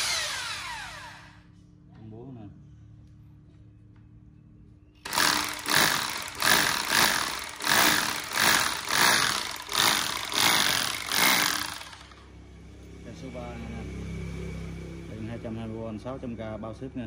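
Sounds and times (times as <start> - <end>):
rotary hammer drill running: 0.0 - 1.5, 5.0 - 12.3.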